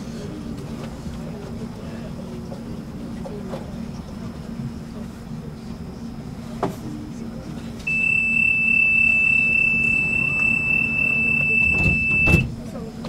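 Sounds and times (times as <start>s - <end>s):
tram low hum: 0.0s - 13.0s
loud high warning beep: 7.9s - 12.5s.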